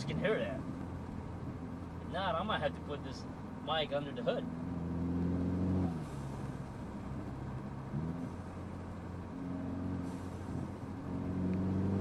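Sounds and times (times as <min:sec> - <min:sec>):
car engine from inside cabin: 0:00.0 - 0:12.0.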